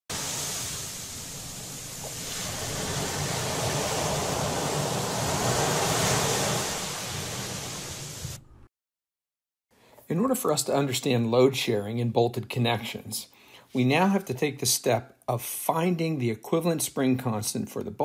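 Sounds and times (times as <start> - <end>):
ocean surf on beach: 0.1 - 8.4.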